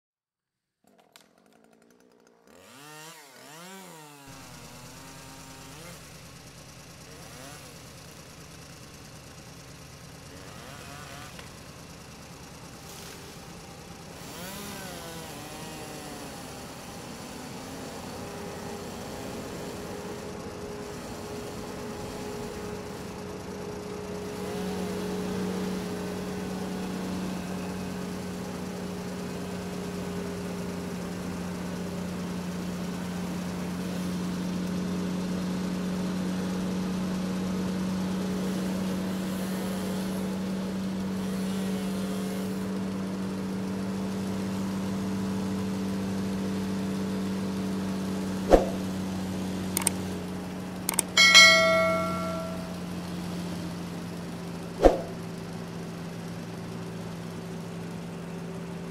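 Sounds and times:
harvester engine running: 0:01.8 - 0:31.0, 0:47.9 - 0:53.4
sharp click: 0:48.5 - 0:48.8, 0:50.9 - 0:52.7, 0:54.8 - 0:55.1
short bright bell chime: 0:50.9 - 0:52.9.

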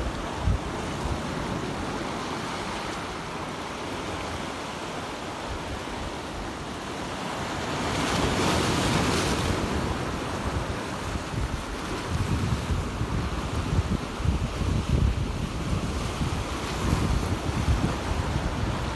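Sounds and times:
waves breaking on rocks: 0:00.0 - 0:18.9
wind buffeting microphone: 0:08.0 - 0:18.9.

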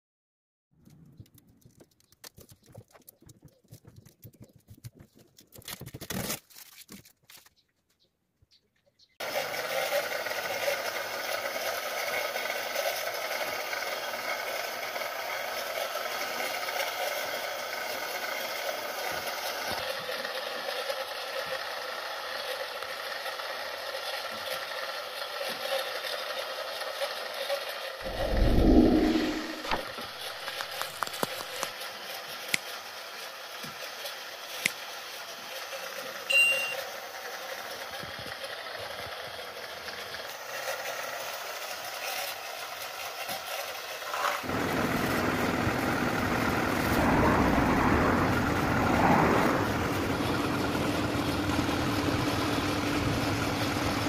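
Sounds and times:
heat gun fan running: 0:44.4 - 0:48.3.

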